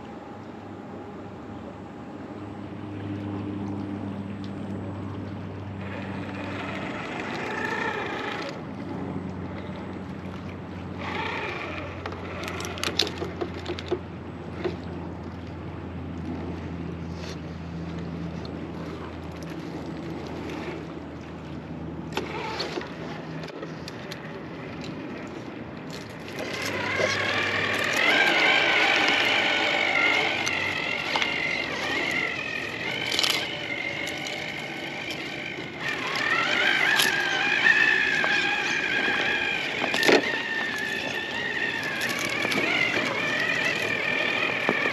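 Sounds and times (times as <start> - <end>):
electric motor whining: 5.8 - 8.7, 11.0 - 13.9, 25.9 - 44.9.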